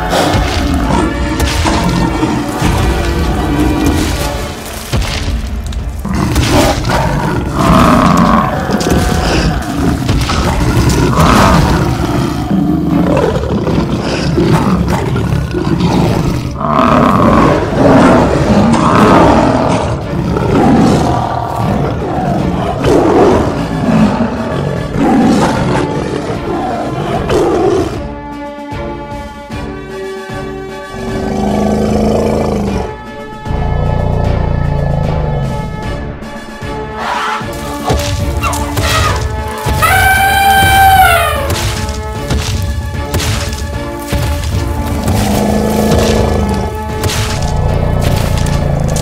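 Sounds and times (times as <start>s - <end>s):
background music: 0.0s - 49.0s
dinosaur roars: 6.0s - 28.1s, 30.9s - 35.9s, 44.6s - 49.0s.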